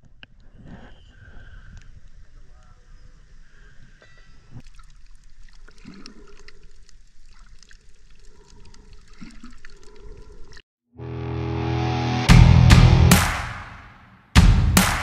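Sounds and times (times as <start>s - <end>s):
underwater clicks and crackles: 4.1s - 10.6s
music: 11.0s - 15.0s.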